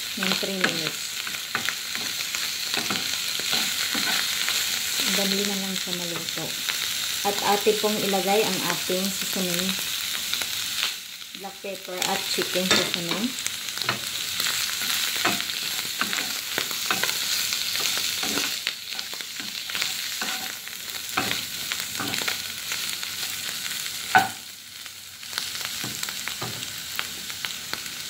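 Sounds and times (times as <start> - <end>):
food sizzling in a wok: 0.0 - 28.0
spatula scraping a pan: 13.8 - 22.4.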